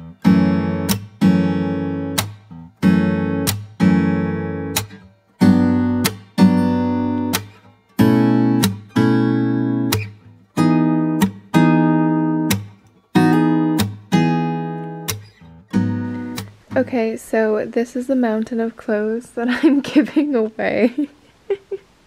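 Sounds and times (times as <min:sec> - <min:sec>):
acoustic guitar strumming chords: 0:00.0 - 0:17.2.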